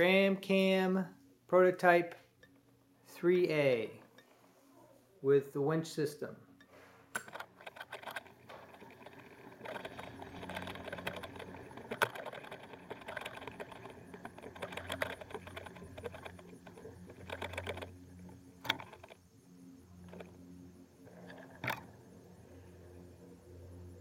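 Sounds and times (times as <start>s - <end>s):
camera rig rattling and clicking: 7.2s - 19.2s, 21.1s - 21.9s.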